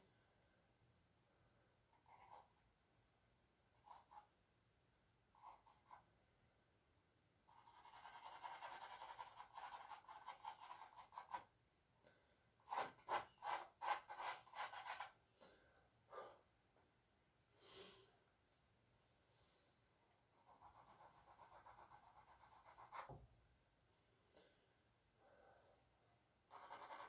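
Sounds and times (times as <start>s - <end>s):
charcoal scratching on canvas: 7.5s - 11.4s, 12.7s - 15.2s, 26.5s - 27.0s.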